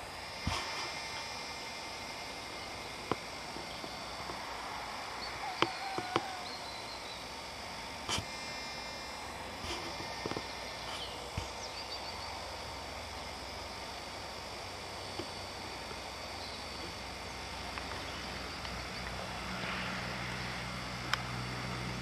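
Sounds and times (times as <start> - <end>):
distant tractor hum: 0.0 - 22.0
bird chirps: 5.2 - 7.3, 10.4 - 12.4.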